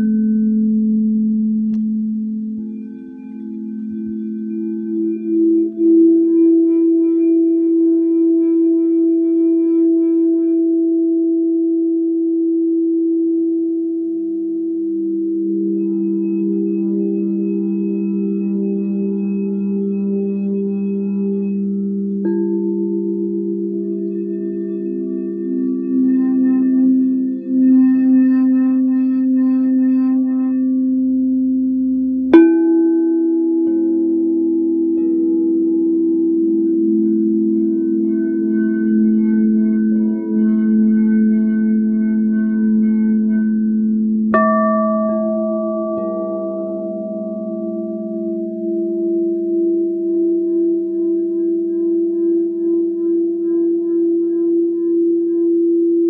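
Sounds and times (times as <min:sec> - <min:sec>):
singing bowl ringing: 0:00.0 - 0:08.5, 0:14.9 - 0:56.0
singing bowl struck: 0:32.3 - 0:52.1.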